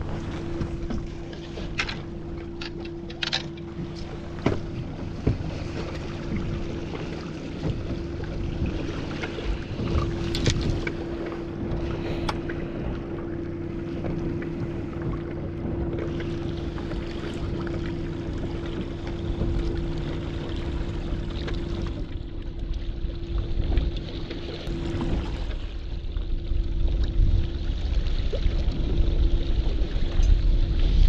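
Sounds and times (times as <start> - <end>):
outboard motor running: 0.0 - 31.0
water against hull: 0.0 - 31.0
wind on microphone: 24.7 - 31.0.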